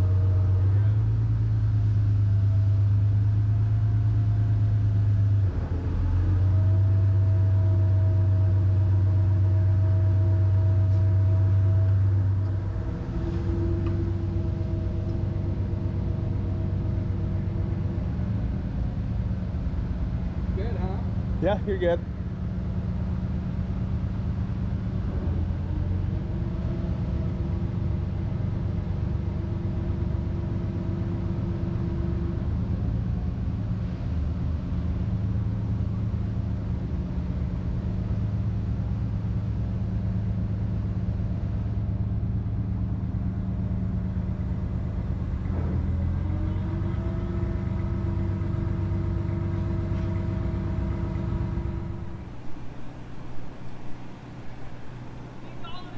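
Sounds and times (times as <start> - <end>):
boat engine running: 0.0 - 34.1, 39.9 - 55.9
high whine: 51.6 - 55.9.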